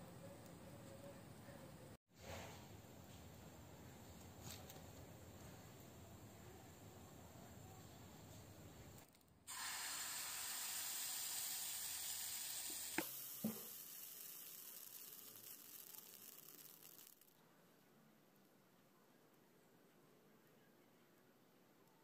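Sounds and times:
batter sizzling in frying pan: 0:09.5 - 0:17.2.

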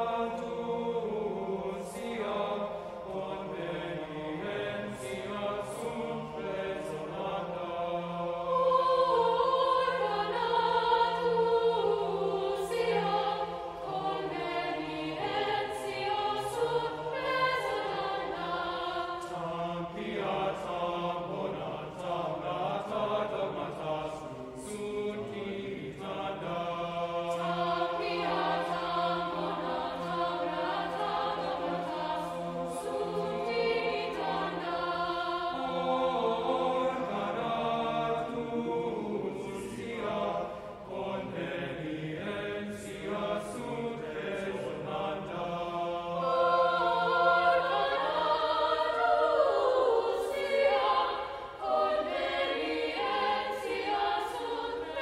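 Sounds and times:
mixed-voice choir singing: 0:00.0 - 0:55.0.

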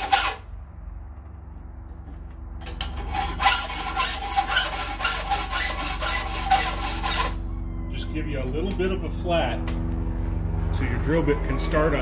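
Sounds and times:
hand file rasping on iron: 0:00.0 - 0:00.4, 0:03.0 - 0:07.4.

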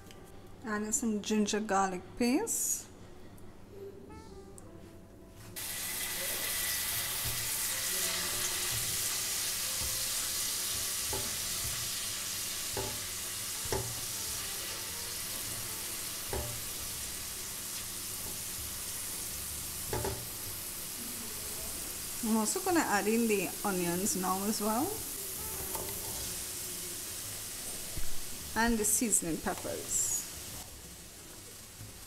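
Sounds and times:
paste sizzling in hot oil: 0:05.6 - 0:32.0
spatula knocking against pan: 0:11.0 - 0:11.8, 0:12.7 - 0:13.1, 0:13.7 - 0:14.0, 0:16.3 - 0:16.7, 0:19.9 - 0:20.3.

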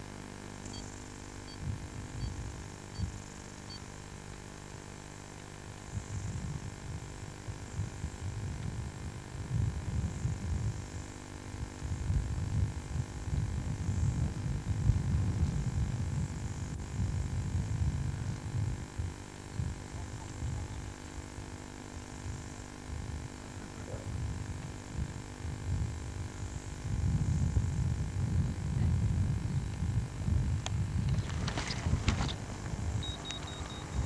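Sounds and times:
faint steady hum: 0:00.0 - 0:34.0
wind buffeting microphone: 0:25.0 - 0:34.0.

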